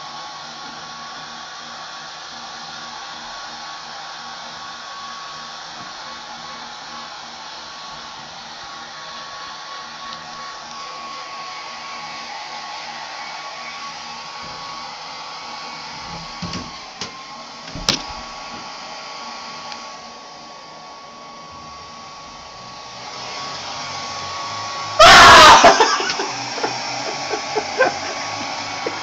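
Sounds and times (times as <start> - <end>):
electric blower whirring: 0.0 - 29.0
person yelling loudly: 25.0 - 26.2.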